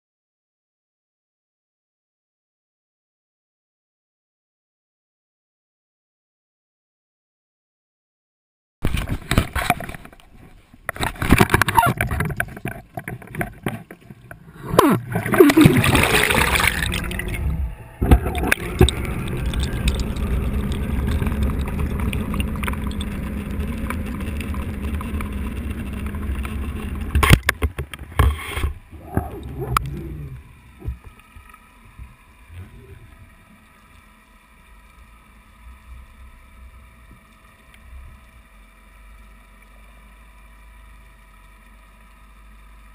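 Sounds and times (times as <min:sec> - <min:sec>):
faint underwater hum: 0:08.9 - 0:42.9
water splashing and bubbling: 0:08.9 - 0:42.9
low underwater rumble: 0:10.2 - 0:42.9.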